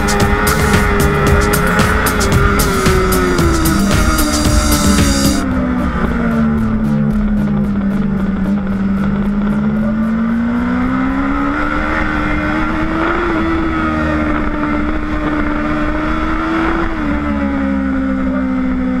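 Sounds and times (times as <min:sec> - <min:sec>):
motorcycle engine at high revs: 0:00.0 - 0:19.0
road rumble: 0:00.0 - 0:19.0
wind: 0:05.1 - 0:19.0.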